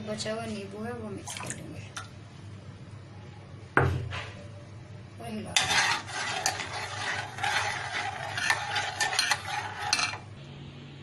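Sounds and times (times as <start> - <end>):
spoon stirring and scraping in pot: 5.5 - 10.3.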